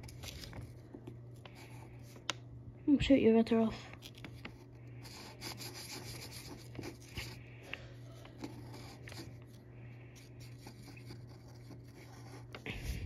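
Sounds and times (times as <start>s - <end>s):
marker scribbling on paper: 5.0s - 7.4s, 8.4s - 9.4s, 10.4s - 12.6s.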